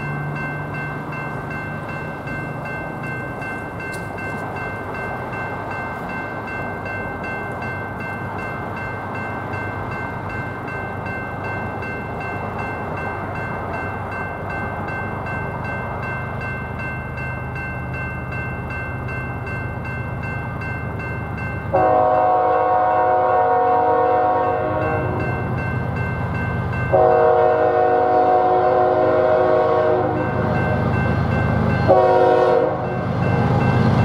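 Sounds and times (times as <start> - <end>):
crossing warning bells ringing: 0.0 - 34.0
low rumble of train: 0.0 - 34.0
train horn chord blasts: 21.7 - 25.4, 26.9 - 30.4, 31.8 - 33.0.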